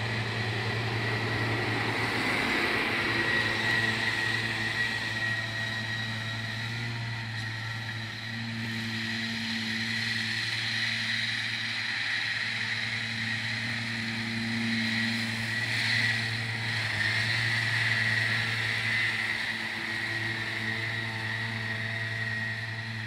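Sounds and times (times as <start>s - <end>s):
mower high whine: 0.0s - 23.0s
tractor engine hum: 0.0s - 23.0s.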